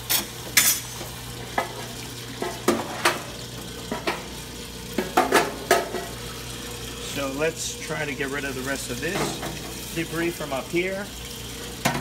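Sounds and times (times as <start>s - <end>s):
metal tool clanking in fryer vat: 0.0s - 1.8s, 5.0s - 6.1s, 9.0s - 9.9s
oil draining: 0.0s - 12.0s
pump motor hum: 0.0s - 12.0s.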